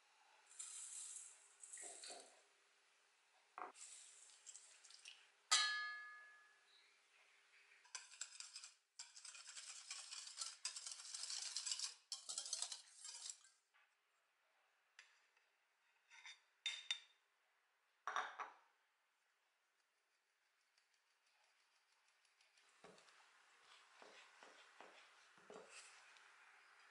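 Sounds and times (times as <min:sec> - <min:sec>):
sharp ringing metallic clink: 0:05.5 - 0:06.4
whisk beating in a metal bowl: 0:08.0 - 0:13.4.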